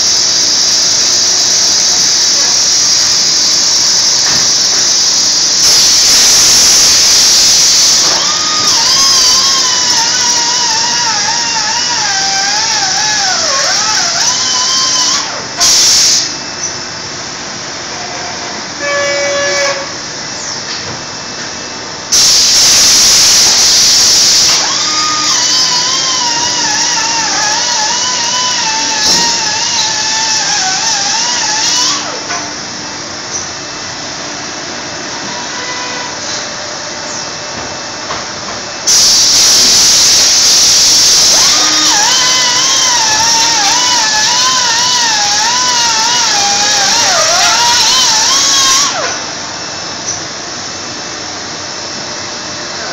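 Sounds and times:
compressed air hiss: 0.0s - 13.2s, 13.8s - 16.4s, 22.1s - 30.0s, 38.9s - 49.0s
steady machine noise: 0.0s - 52.9s
brief tonal squeal: 18.0s - 20.6s, 35.2s - 37.3s.

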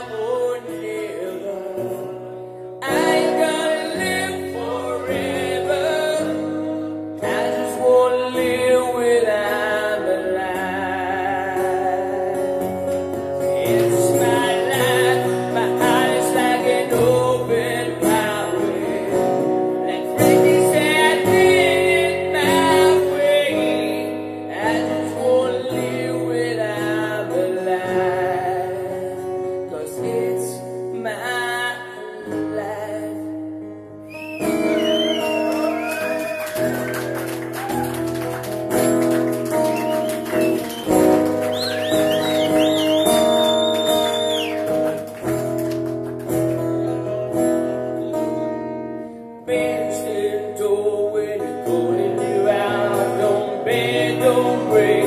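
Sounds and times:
man singing rock ballad: 0.0s - 33.7s, 49.4s - 55.0s
acoustic guitar: 0.0s - 55.0s.

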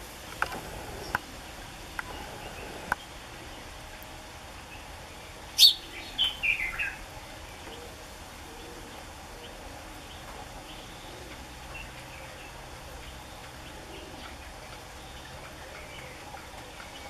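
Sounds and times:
low steady background hiss: 0.0s - 17.0s
sparrow chirping: 1.8s - 3.6s, 5.5s - 7.0s.

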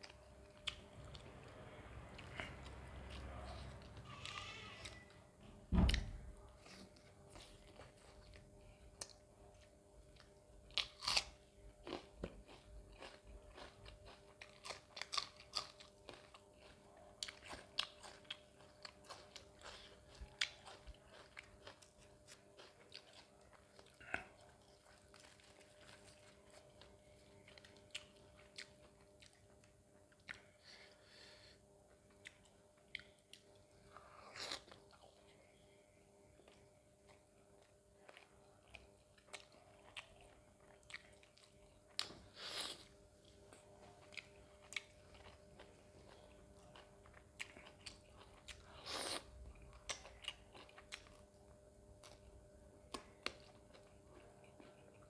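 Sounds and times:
faint steady hum: 0.0s - 55.0s
chewing with wet mouth smacks: 11.8s - 30.8s, 32.1s - 35.4s, 36.4s - 42.3s, 43.2s - 55.0s.

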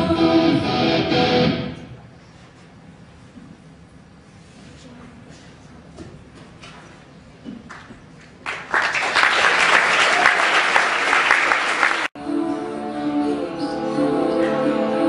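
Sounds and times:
audience clapping: 7.7s - 12.2s
music with held notes: 12.2s - 15.0s.

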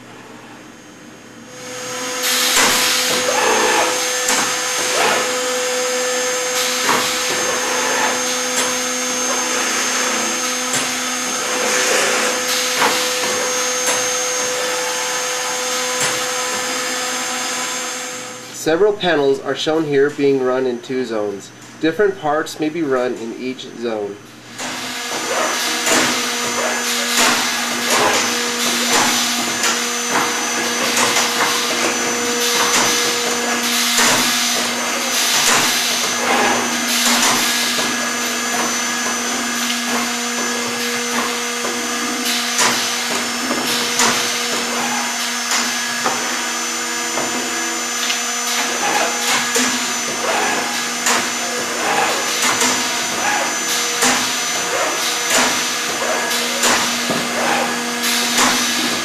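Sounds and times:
spindle motors whining: 0.1s - 23.3s, 23.9s - 59.0s
drill bits cutting wood: 1.7s - 17.7s.

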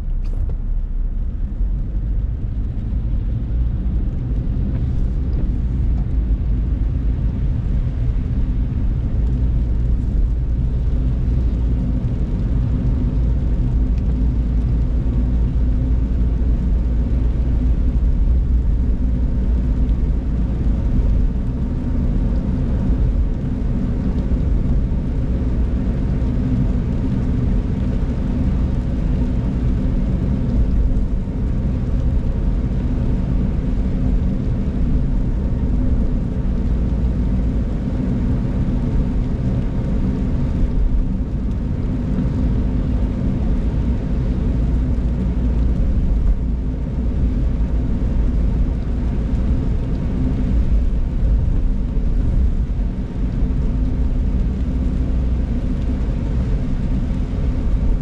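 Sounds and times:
car engine and tyres on wet road: 0.0s - 58.0s.

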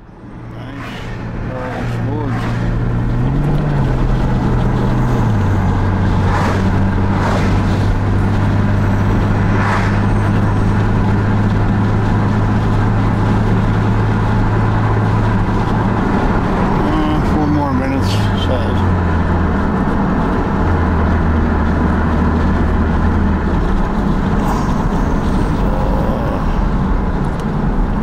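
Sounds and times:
car engine drone: 0.0s - 28.0s
road noise: 0.0s - 28.0s
brief whooshes: 0.4s - 2.8s, 6.1s - 8.0s, 9.0s - 10.8s.

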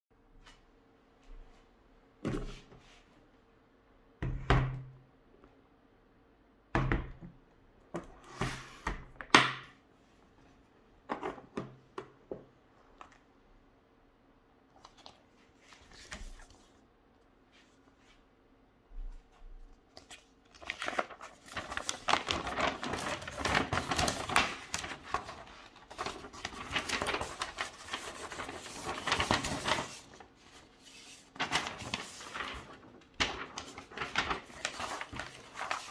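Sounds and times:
paper rustling: 14.7s - 16.8s, 19.1s - 35.9s.

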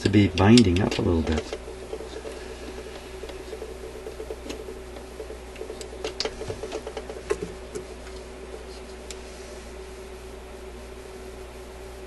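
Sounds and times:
sharp metal clicks: 0.0s - 2.2s
record player hum: 0.0s - 12.0s.

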